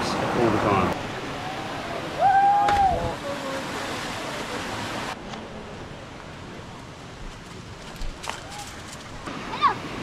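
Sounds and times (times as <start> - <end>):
running water rushing: 0.0 - 10.0.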